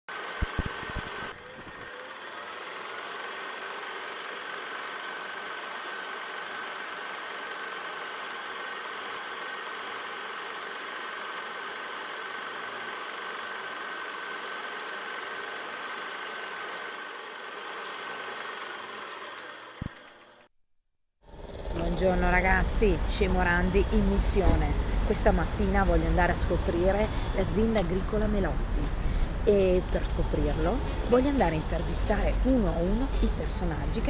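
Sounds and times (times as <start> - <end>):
high-pitched hum: 0.1 - 7.3, 21.3 - 34.0
film projector whirring: 0.1 - 20.5.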